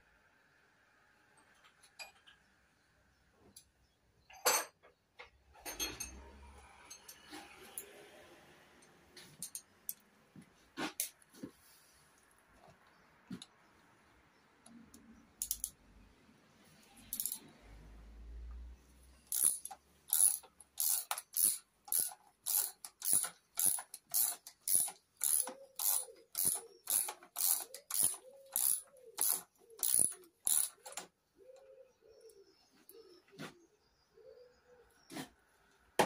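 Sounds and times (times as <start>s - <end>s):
ratchet wrench clicking: 15.4s - 15.8s, 17.1s - 17.5s, 19.3s - 31.0s.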